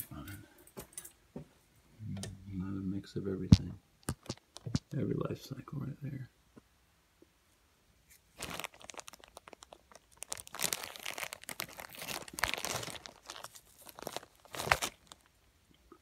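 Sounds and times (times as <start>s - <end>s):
fabric rustling and crinkling: 8.1s - 15.4s.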